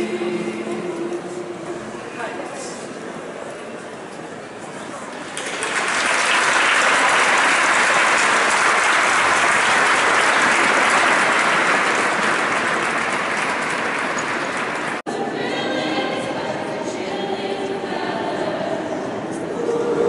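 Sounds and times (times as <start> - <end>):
crowd applauding: 5.1 - 15.0.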